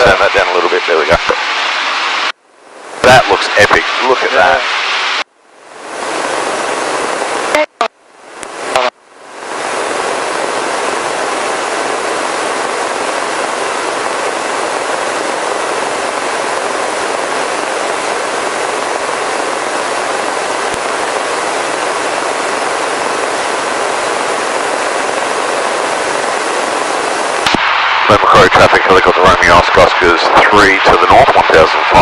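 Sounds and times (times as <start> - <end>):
helicopter cabin rushing noise: 3.0 - 5.2, 8.6 - 32.0.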